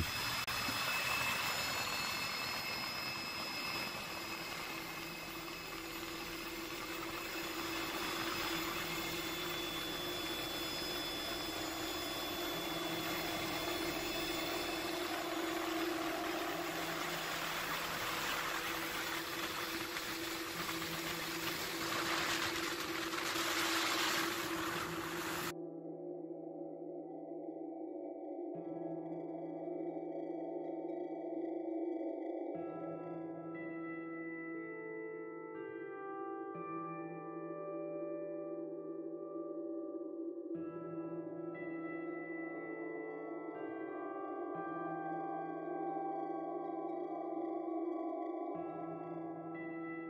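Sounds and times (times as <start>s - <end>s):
helicopter engine and rotor drone: 0.0s - 25.5s.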